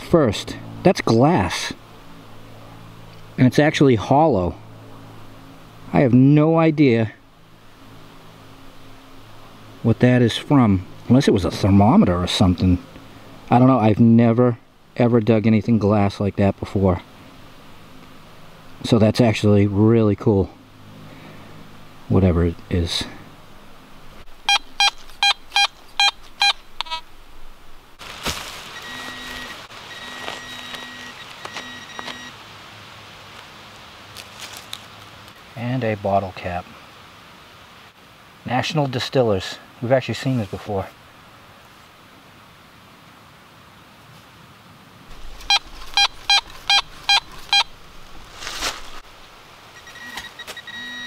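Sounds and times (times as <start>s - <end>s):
dirt rustling: 24.0s - 32.4s, 33.2s - 35.7s, 45.1s - 50.8s
metal detector pinpointer beeping: 24.4s - 27.0s, 28.8s - 32.3s, 45.4s - 47.7s, 49.8s - 51.0s.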